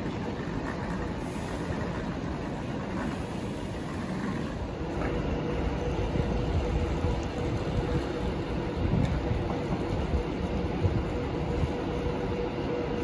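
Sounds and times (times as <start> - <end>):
faint steady whine: 0.0 - 13.0
train rumble: 0.0 - 13.0.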